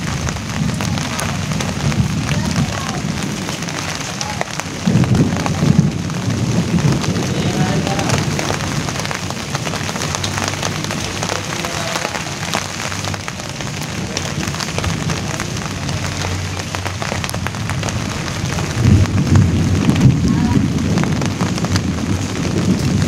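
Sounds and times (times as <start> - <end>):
rain on leaves: 0.0 - 23.0.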